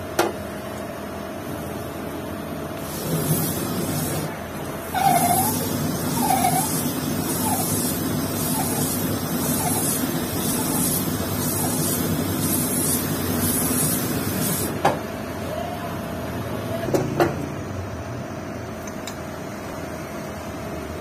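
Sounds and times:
grinding hiss: 2.8 - 14.8.

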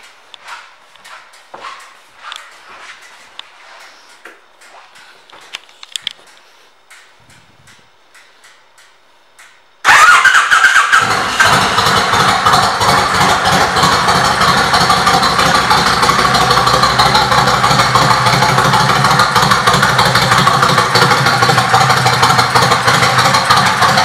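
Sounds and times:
motorcycle engine idling: 9.8 - 24.0.

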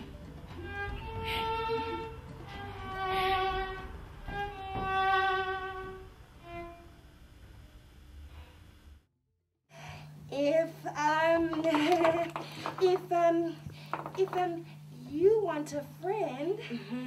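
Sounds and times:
violin playing slow held notes: 0.5 - 7.0.

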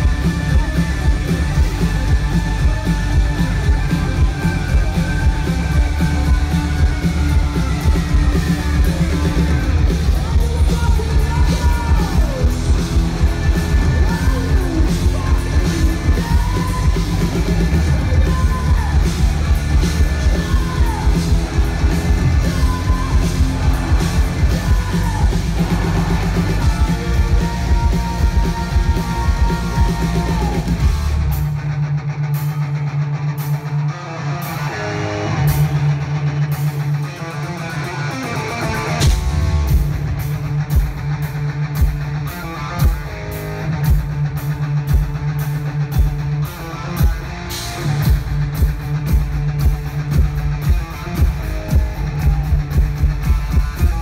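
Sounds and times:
sung and yelled vocals: 0.0 - 31.2
electric guitar: 0.0 - 54.0
live rock band: 0.0 - 54.0.

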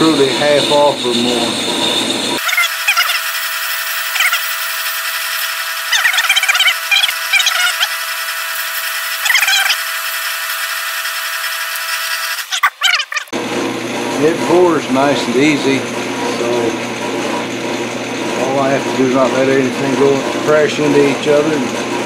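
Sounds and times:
lathe whining: 0.0 - 22.0
drill bit squealing: 0.1 - 13.3.

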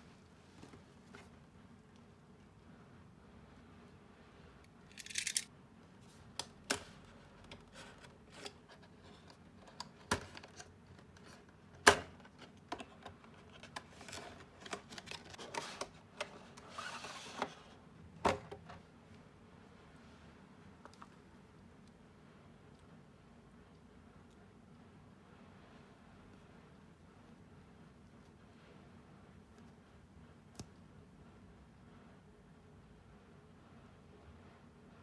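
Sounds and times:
soft packaging rustle: 7.0 - 17.8.

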